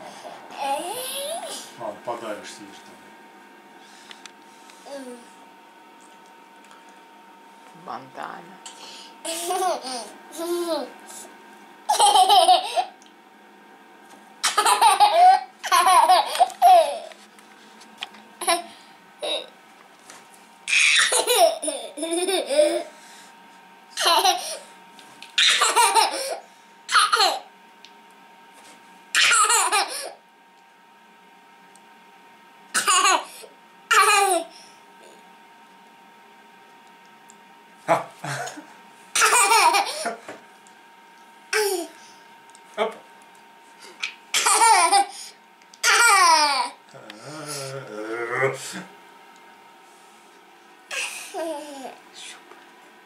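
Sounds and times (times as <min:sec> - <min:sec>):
child laughing: 0:00.6 - 0:01.6, 0:09.3 - 0:10.9, 0:11.9 - 0:13.0, 0:14.5 - 0:17.1, 0:18.4 - 0:19.5, 0:20.7 - 0:22.9, 0:24.0 - 0:24.6, 0:25.4 - 0:27.5, 0:29.2 - 0:30.2, 0:33.9 - 0:34.5, 0:39.2 - 0:40.2, 0:44.4 - 0:45.2, 0:45.8 - 0:46.8, 0:50.9 - 0:52.0
toddler giggling: 0:09.3 - 0:10.9, 0:11.9 - 0:12.9, 0:14.5 - 0:17.1, 0:18.4 - 0:19.5, 0:20.8 - 0:22.9, 0:24.0 - 0:24.6, 0:25.4 - 0:27.5, 0:44.4 - 0:45.1.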